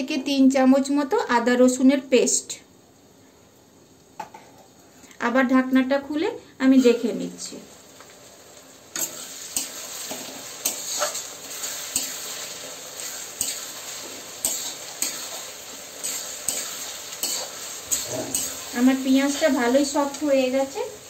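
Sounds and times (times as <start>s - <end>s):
vegetables sizzling in oil: 5.2s - 21.0s
spatula scraping pan: 9.0s - 20.0s.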